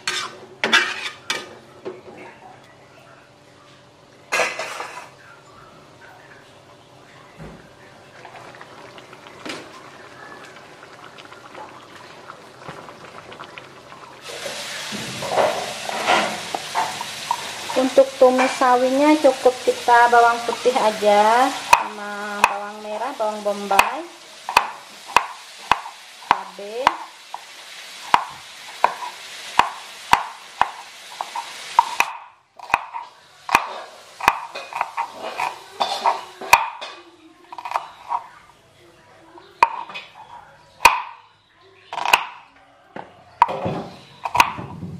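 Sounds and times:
sauce bubbling and popping: 8.0s - 18.1s, 23.7s - 35.6s.

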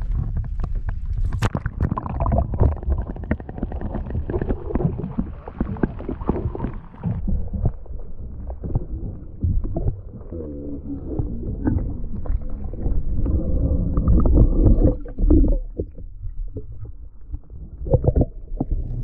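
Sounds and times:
underwater gurgling and sloshing: 0.0s - 19.0s
water splash: 1.0s - 7.2s.

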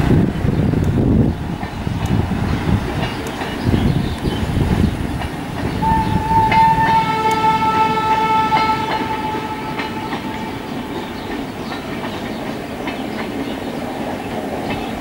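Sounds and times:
train coaches clattering past: 0.0s - 15.0s
train horn blast: 5.8s - 11.3s.

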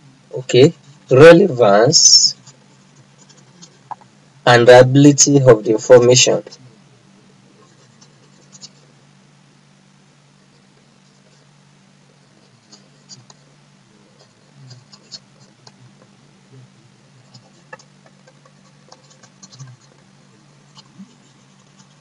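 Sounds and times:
low electrical hum: 0.0s - 22.0s
handwriting scratches and ticks: 2.4s - 4.0s, 7.6s - 8.9s, 14.1s - 16.1s, 17.2s - 22.0s.

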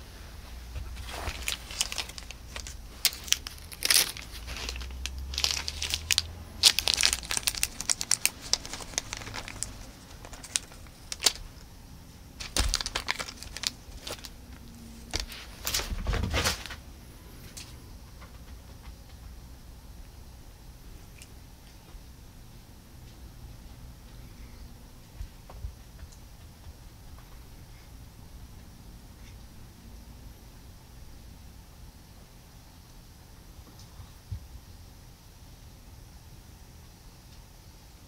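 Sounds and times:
cat toy crinkling: 0.8s - 11.7s, 12.4s - 16.8s.

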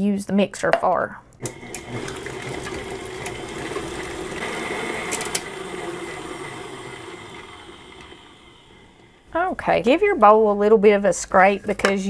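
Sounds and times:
stand mixer running: 1.4s - 9.3s.

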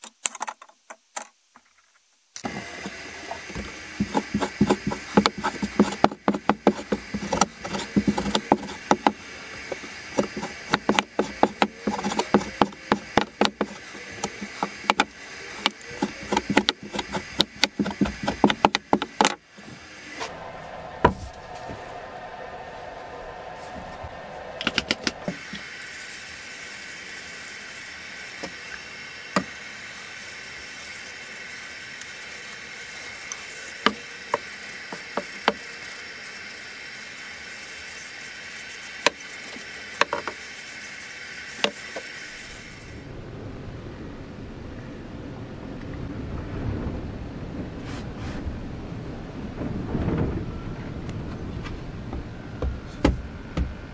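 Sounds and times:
steady hiss: 0.0s - 43.2s
scattered clicks: 24.6s - 25.3s.

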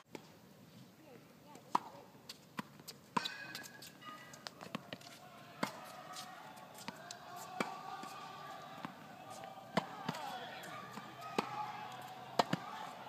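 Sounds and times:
tennis ball hits and bounces: 1.7s - 2.0s, 2.6s - 8.2s, 8.8s - 13.0s.

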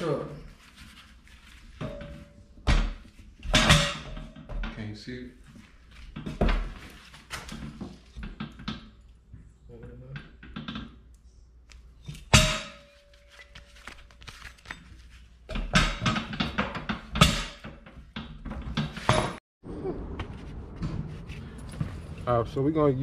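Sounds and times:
loud ringing metal clang: 12.3s - 13.0s
metal parts knocking and clanking: 15.5s - 19.4s.

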